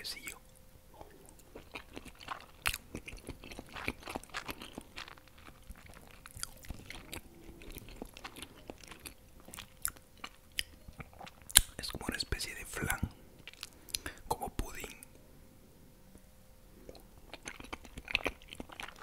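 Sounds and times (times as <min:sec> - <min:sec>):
close chewing: 0:01.0 - 0:12.0, 0:16.9 - 0:19.0.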